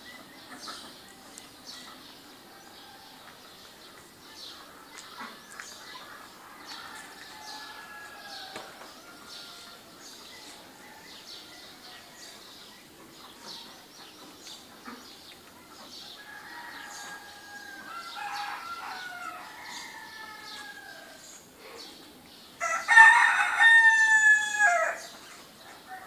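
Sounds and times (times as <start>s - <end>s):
small birds chirping: 0.0s - 23.6s, 24.7s - 26.0s
rooster crowing: 6.6s - 9.9s, 16.2s - 21.2s, 22.6s - 25.1s.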